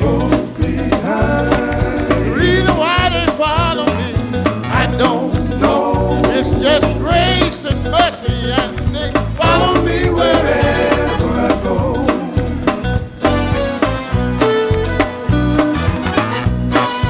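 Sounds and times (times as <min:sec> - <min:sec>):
person singing: 0:00.0 - 0:12.6
bass guitar: 0:00.0 - 0:17.0
electric guitars: 0:00.0 - 0:17.0
steady drum beat: 0:00.0 - 0:17.0.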